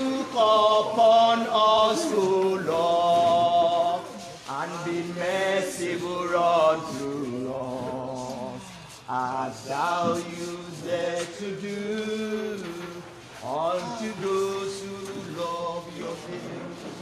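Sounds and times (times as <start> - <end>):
people singing a slow chant: 0.0 - 17.0.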